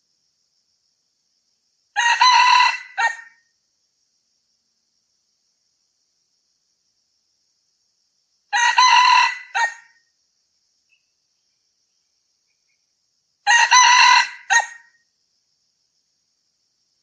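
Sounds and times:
rooster crowing: 0:02.0 - 0:03.4, 0:08.5 - 0:10.0, 0:13.4 - 0:15.0.

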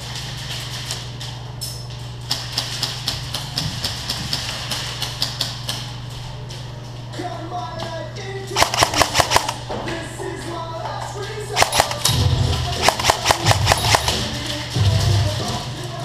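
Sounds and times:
low hum: 0:05.8 - 0:16.0
airsoft gun snapping clicks: 0:08.6 - 0:09.6, 0:11.6 - 0:12.1, 0:12.8 - 0:14.0.

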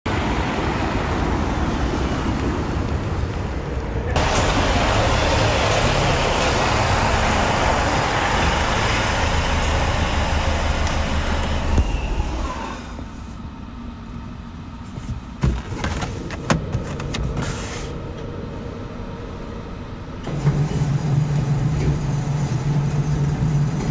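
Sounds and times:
road traffic rumble: 0:00.1 - 0:23.9.

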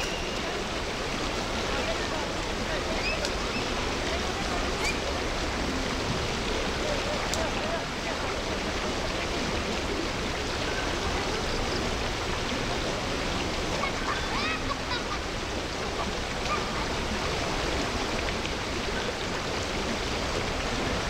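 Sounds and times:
faint short calls: 0:00.0 - 0:00.6
floodwater rushing: 0:00.0 - 0:21.0.

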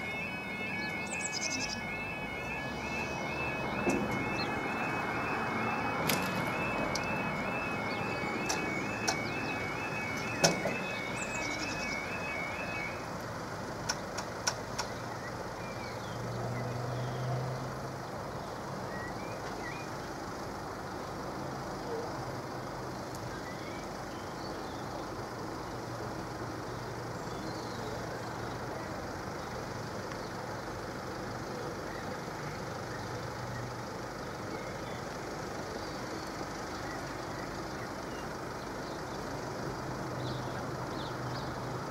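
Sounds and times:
level-crossing warning alarm: 0:00.0 - 0:13.8.

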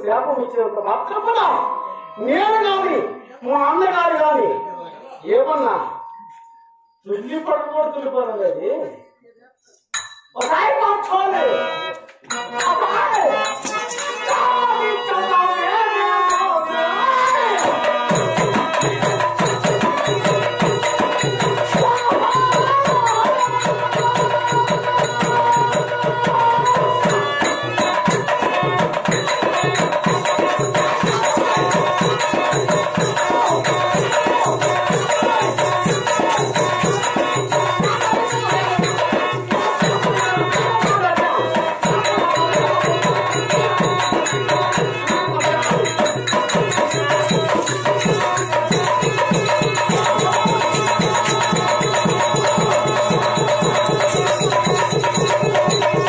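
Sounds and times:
wavering melody: 0:01.4 - 0:03.2, 0:04.2 - 0:07.3
steady drum rhythm: 0:17.5 - 0:56.0.

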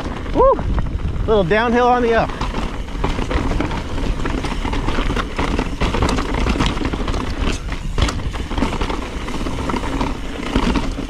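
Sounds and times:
bike clicks and clatter: 0:00.0 - 0:11.0
bike tyres crunching over stones: 0:00.0 - 0:11.0
low wind rumble on microphone: 0:00.0 - 0:11.0.

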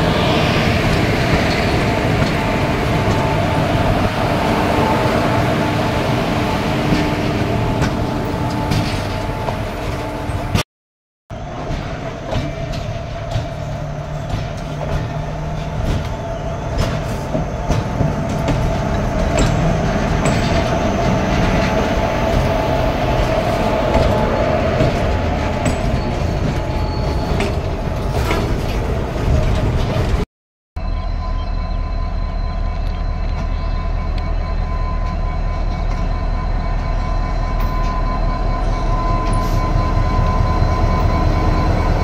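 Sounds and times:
constant whine: 0:00.0 - 0:10.6, 0:30.8 - 0:42.0
locomotive rumble: 0:00.0 - 0:10.6, 0:11.3 - 0:42.0.

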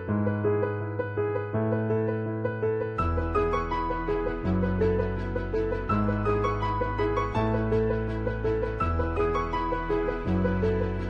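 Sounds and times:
piano-like keyboard melody: 0:00.0 - 0:11.0.

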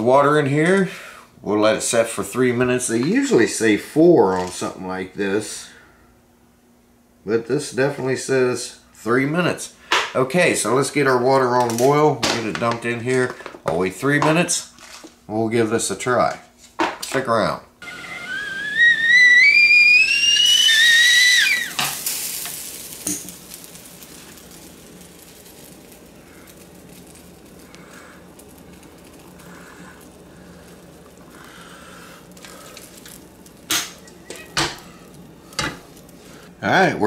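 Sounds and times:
kettle whistling: 0:17.8 - 0:36.6
water pouring hiss: 0:17.8 - 0:36.6.

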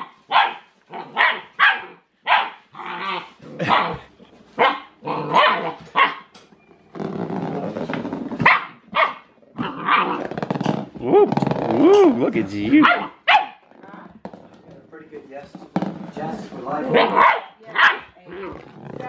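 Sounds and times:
puppy barking: 0:00.0 - 0:06.3, 0:08.4 - 0:10.2, 0:12.7 - 0:13.6, 0:16.9 - 0:18.2
puppy growling: 0:02.7 - 0:04.2, 0:05.0 - 0:06.1, 0:07.0 - 0:14.2, 0:18.0 - 0:19.0.

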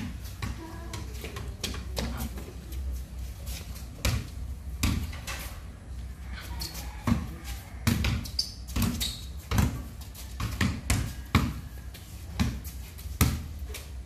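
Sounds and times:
basketball bouncing on concrete: 0:00.0 - 0:02.4, 0:04.0 - 0:05.4, 0:06.9 - 0:13.7.

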